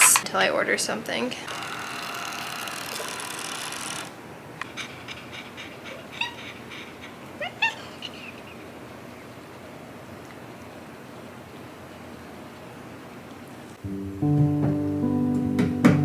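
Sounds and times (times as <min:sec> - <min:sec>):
label maker motor whirring: 0:01.5 - 0:04.2.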